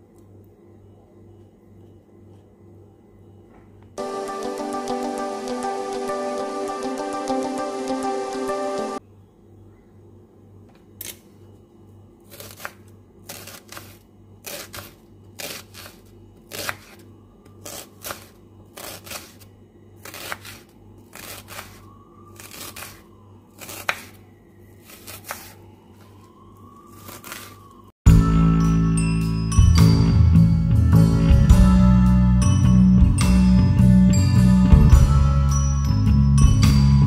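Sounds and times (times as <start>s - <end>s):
knife chopping on wooden board: 12.3s - 17.0s, 23.6s - 24.2s.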